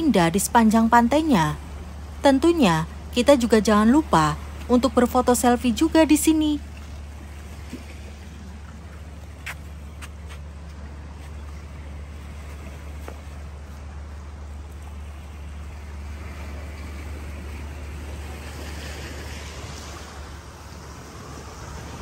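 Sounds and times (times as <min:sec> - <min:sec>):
wind rumble on microphone: 0:07.1 - 0:22.0.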